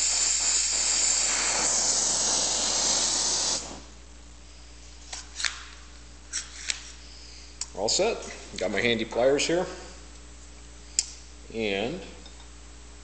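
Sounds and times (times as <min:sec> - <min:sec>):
welding torch hissing: 0:00.0 - 0:04.0.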